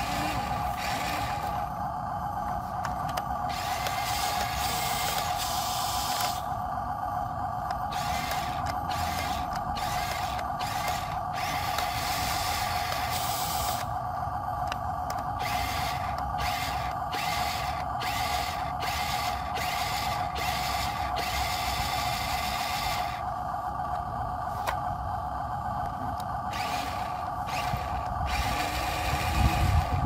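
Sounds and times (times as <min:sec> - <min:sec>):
toy motor whirring in bursts: 0:00.0 - 0:01.7, 0:03.1 - 0:06.6, 0:07.7 - 0:13.9, 0:15.1 - 0:23.3, 0:26.5 - 0:30.0
steady whine: 0:00.0 - 0:30.0.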